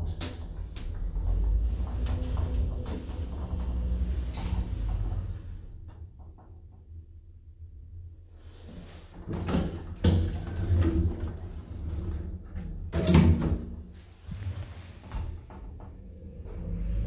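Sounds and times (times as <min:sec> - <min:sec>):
sliding glass doors opening: 0:00.0 - 0:05.8, 0:08.8 - 0:13.8.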